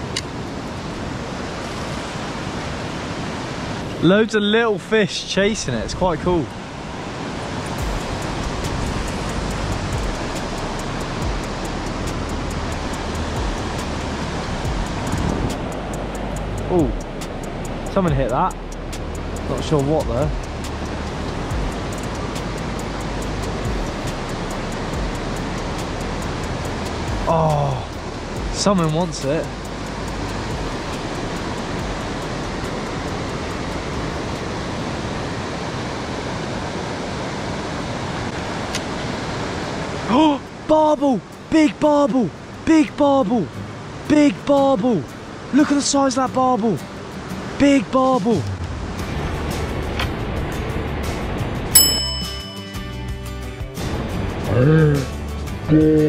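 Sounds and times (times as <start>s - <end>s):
river water rushing: 0.0s - 55.8s
wind rumble on microphone: 5.4s - 40.1s.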